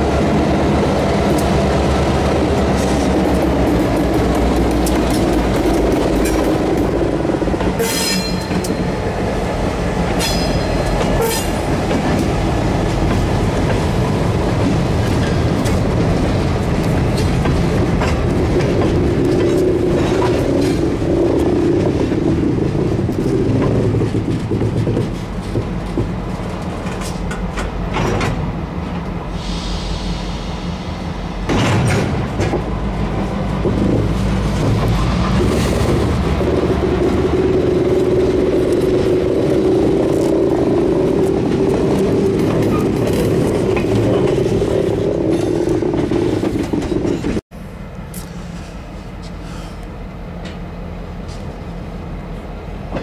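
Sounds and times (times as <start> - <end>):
train wheels rumbling on rails: 0.0 - 53.0
clicks over rail joints: 16.8 - 28.4.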